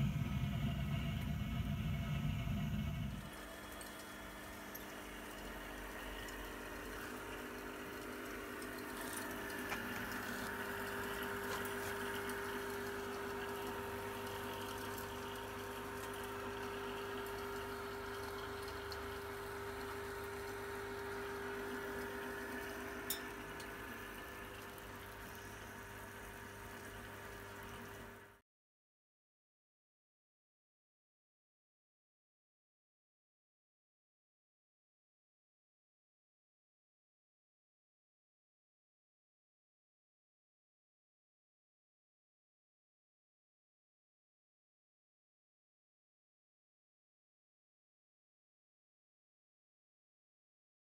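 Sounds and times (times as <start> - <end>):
pump humming: 0.0 - 28.4.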